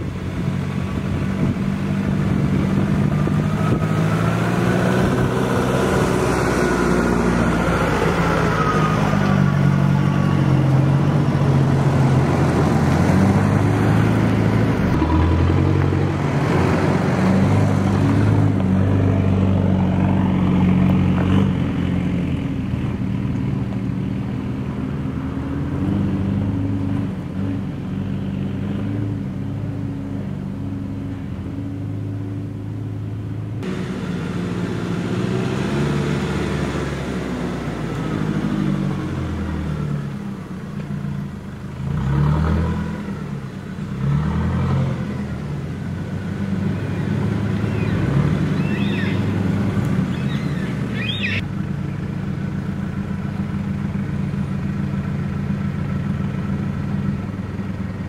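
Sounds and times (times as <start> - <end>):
vehicle engines at low speed: 0.0 - 58.0.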